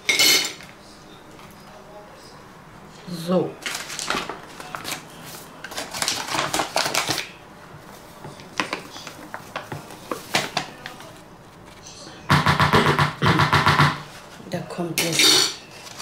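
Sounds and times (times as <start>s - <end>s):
paper bag crinkling: 3.6s - 7.4s, 15.7s - 16.0s.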